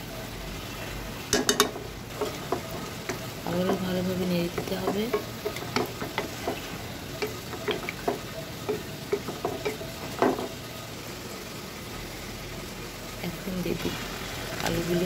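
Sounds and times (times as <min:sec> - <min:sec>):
gravy sizzling: 0:00.0 - 0:15.0
wooden spatula scraping metal pan: 0:02.1 - 0:10.4.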